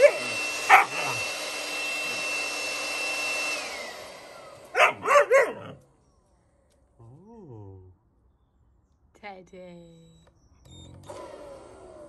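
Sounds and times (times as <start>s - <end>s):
puppy barking: 0.0s - 1.3s, 4.7s - 5.8s
leaf blower whining: 0.0s - 6.0s, 10.7s - 12.0s.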